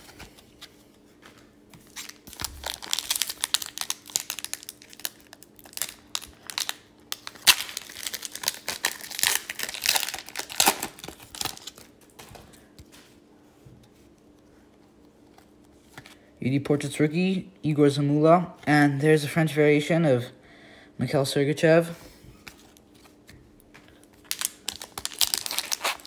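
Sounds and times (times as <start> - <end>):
foil wrapper crinkling and tearing: 1.8 - 12.0, 24.0 - 26.0.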